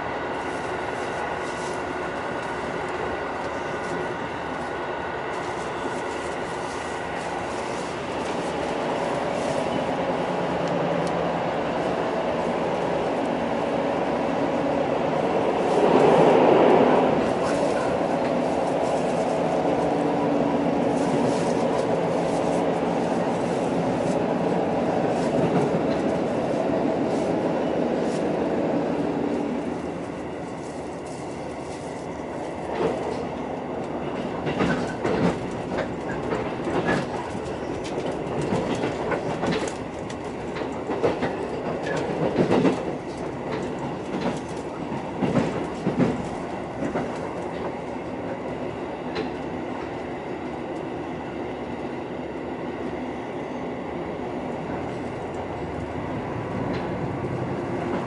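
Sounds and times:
railcar engine hum: 0.0 - 58.0
wheels clicking over rail joints: 33.9 - 47.8.

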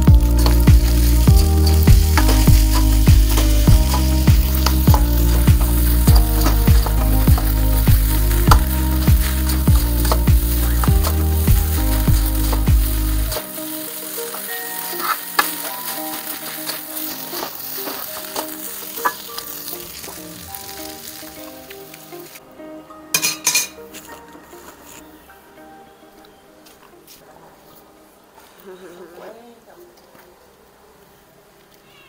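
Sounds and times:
rice sizzling in a wok: 0.0 - 22.4
metal clatter of wok: 23.2 - 23.8.

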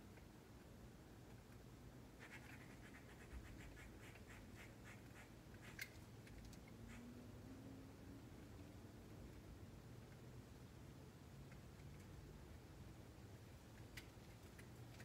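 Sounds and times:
scratching strokes at window frame: 2.2 - 5.9.

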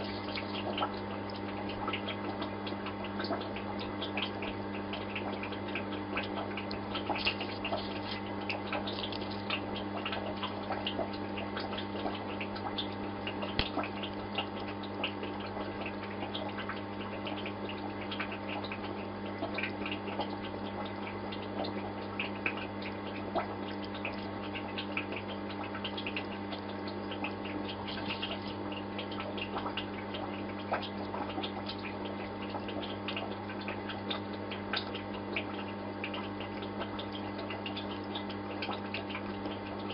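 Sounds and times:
aquarium water bubbling: 0.0 - 39.9
low electrical hum: 0.0 - 39.9.

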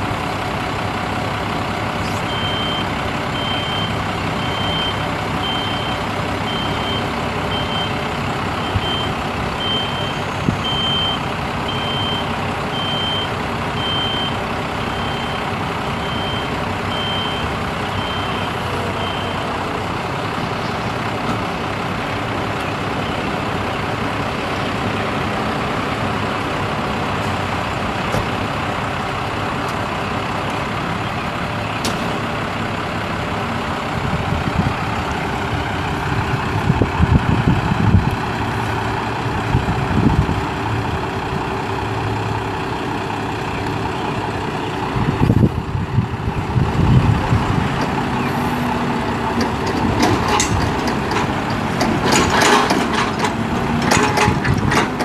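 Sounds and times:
diesel truck engine running: 0.0 - 55.0
high warning beeps: 2.3 - 8.0, 8.6 - 19.5.

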